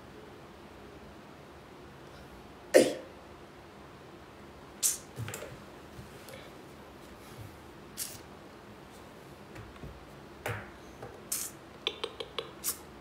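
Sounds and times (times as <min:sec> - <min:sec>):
person sniffing: 0:04.8 - 0:05.1.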